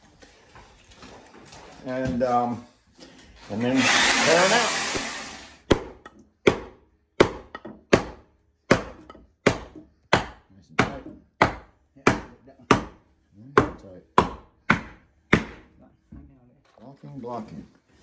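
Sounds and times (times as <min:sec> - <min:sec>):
hammer striking wood: 0:04.9 - 0:13.0, 0:13.6 - 0:15.8.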